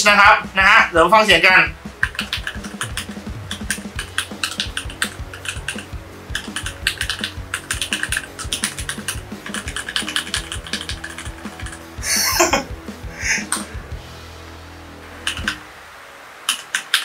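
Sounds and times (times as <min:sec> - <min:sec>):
fast typing on mechanical keyboard: 0:02.0 - 0:11.8, 0:15.2 - 0:15.6, 0:16.5 - 0:17.0.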